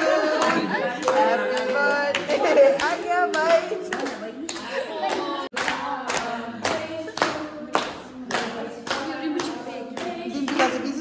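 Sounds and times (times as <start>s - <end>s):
group singing: 0.0s - 11.0s
people clapping in time: 0.0s - 11.0s.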